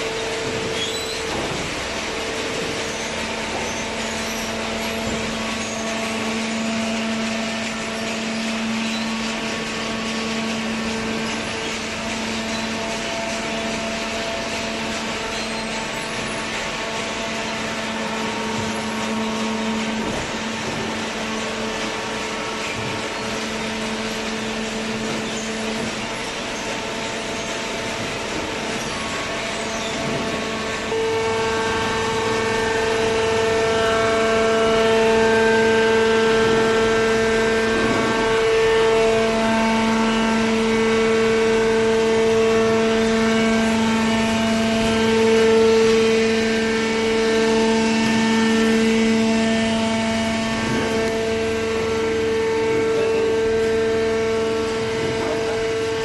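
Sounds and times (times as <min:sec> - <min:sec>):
hydraulic baler motor hum: 0:00.0 - 0:56.0.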